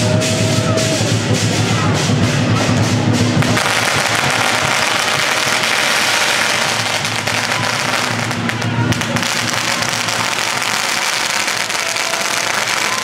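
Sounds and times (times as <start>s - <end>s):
music with steady beat: 0.0s - 6.0s
firecrackers crackling: 0.0s - 13.0s.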